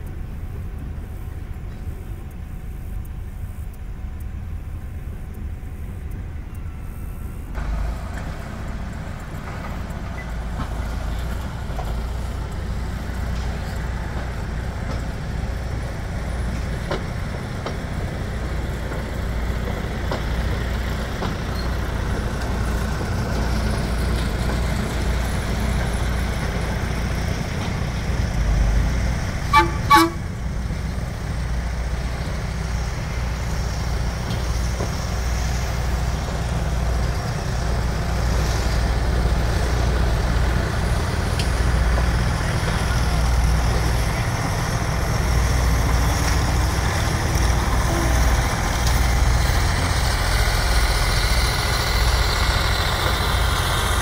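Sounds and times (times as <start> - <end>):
low engine rumble: 0.0 - 54.0
short horn toots: 29.5 - 30.3.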